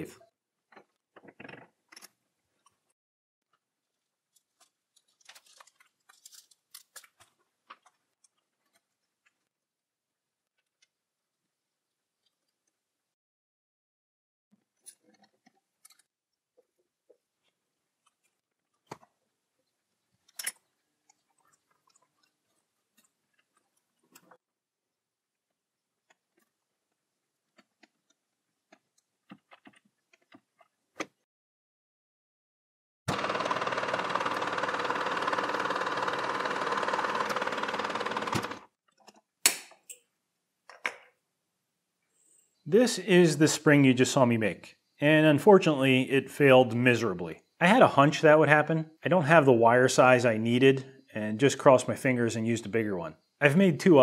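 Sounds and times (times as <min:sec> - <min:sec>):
metal lathe running: 0:33.1 - 0:38.6.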